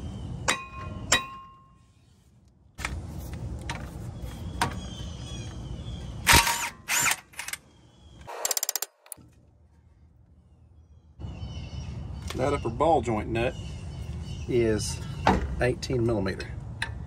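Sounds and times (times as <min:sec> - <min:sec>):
impact wrench bursts and rattle: 0:06.3 - 0:07.6, 0:08.3 - 0:09.1.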